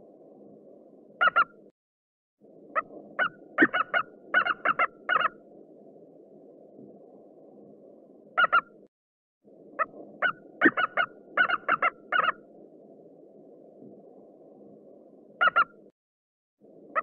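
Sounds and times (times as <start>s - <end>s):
eagle high piping calls: 1.2s - 1.5s, 3.2s - 5.4s, 8.4s - 8.6s, 9.8s - 12.4s, 15.4s - 15.7s.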